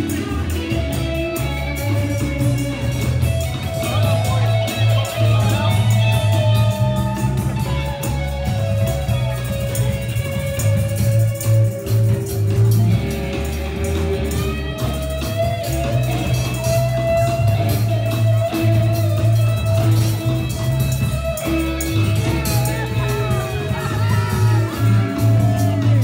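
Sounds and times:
bass line: 0.0 - 26.0
drums: 0.0 - 26.0
electric guitar notes: 0.0 - 26.0.

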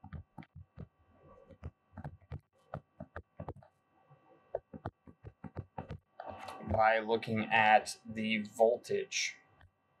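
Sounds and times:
faint electrical hum: 0.1 - 10.0
stylus tapping on tablet screen: 1.5 - 3.7, 4.5 - 6.1.

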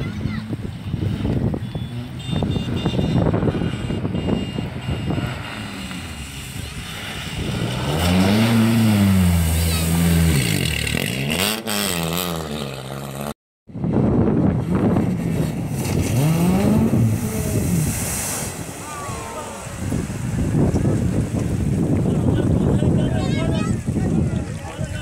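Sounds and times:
rally car engine revving: 0.4 - 13.3, 14.3 - 20.1
water spraying from tyres: 4.3 - 11.2, 15.2 - 23.0.

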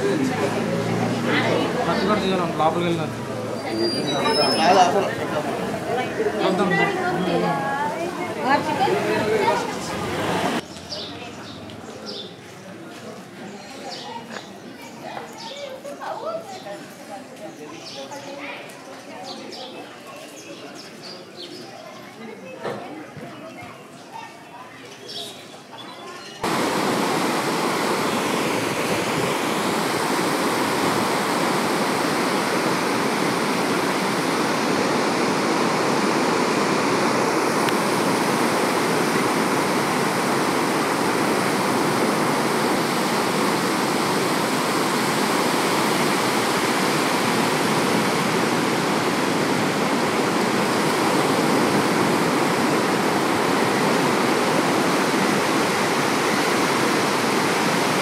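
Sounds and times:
surf washing onto beach: 4.6 - 10.6, 26.4 - 58.0.

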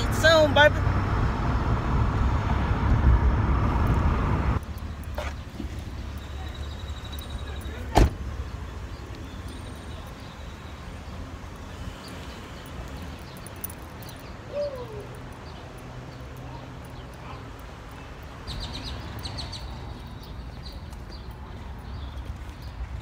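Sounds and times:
wind rumble: 0.8 - 5.0.

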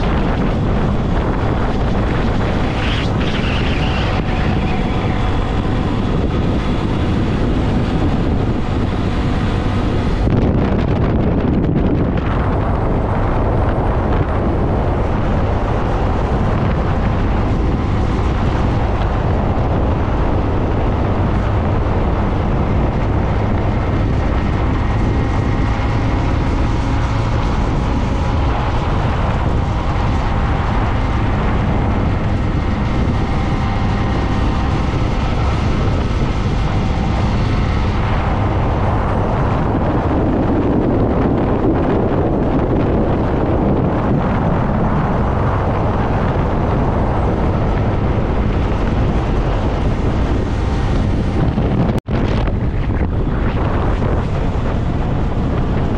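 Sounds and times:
motorcycle engine running: 0.0 - 55.9
wind rushing over microphone: 0.0 - 55.9.

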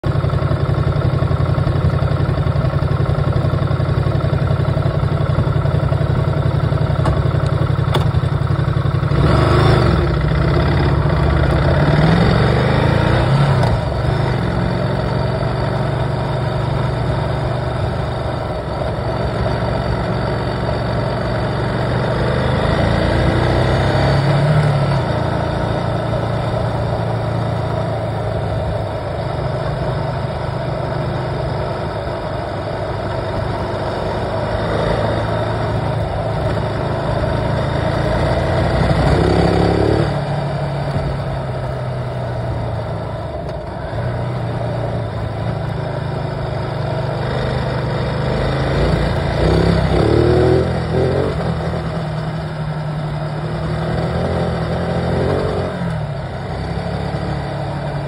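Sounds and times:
vehicle engine humming and revving: 0.0 - 58.0.

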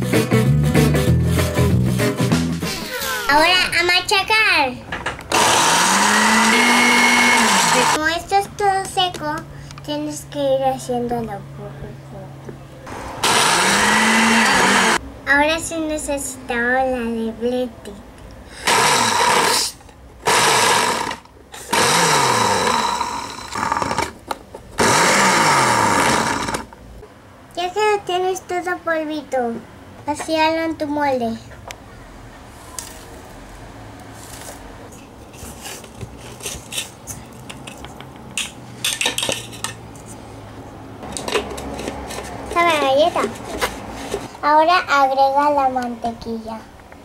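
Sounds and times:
blender grinding biscuits: 5.3 - 8.0, 13.1 - 15.0, 18.5 - 24.2, 24.8 - 26.8.

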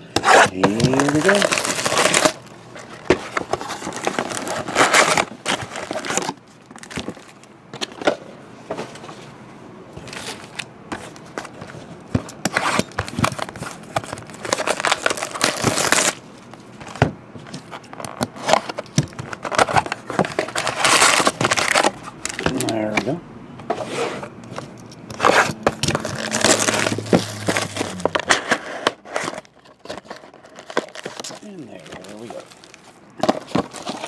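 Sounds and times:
wrappers crinkling and rustling: 0.2 - 7.5, 10.0 - 23.2, 25.1 - 34.0.

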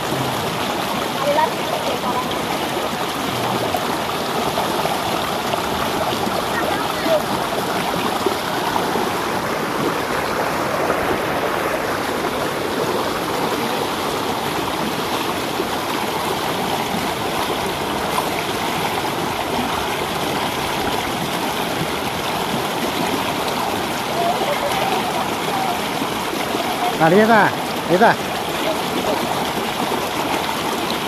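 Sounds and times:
river rushing over stones: 0.0 - 31.0.

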